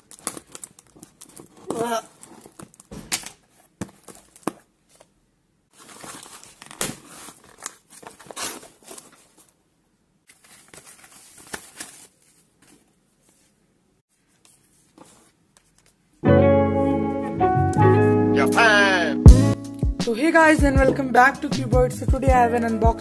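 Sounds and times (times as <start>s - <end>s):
cardboard and foam rustling: 0.0s - 9.6s, 10.3s - 16.0s.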